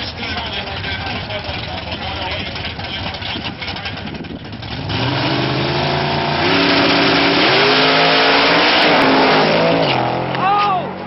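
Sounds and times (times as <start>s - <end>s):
racing car engines accelerating: 2.6s - 11.0s.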